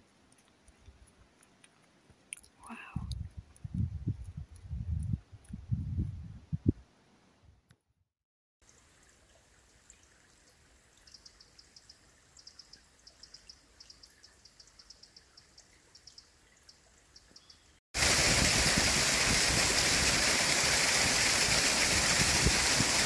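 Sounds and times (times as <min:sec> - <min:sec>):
bird high chirps: 0:11.1 - 0:17.8
stream pouring down waterfall: 0:18.0 - 0:23.0.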